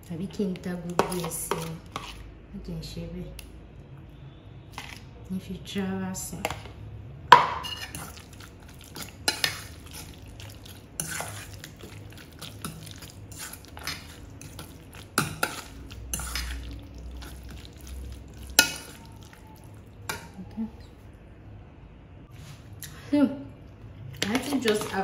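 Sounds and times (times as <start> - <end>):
fork stirring creamy mixture: 0.9 - 2.2, 7.6 - 20.3, 24.2 - 25.0
fork clinking in metal bowl: 11.0 - 17.7, 18.4 - 19.3.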